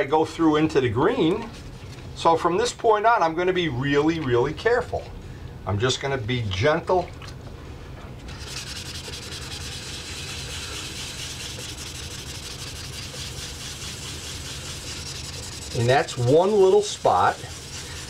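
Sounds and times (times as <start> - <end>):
wet sandpaper rubbing: 8.3 - 18.0.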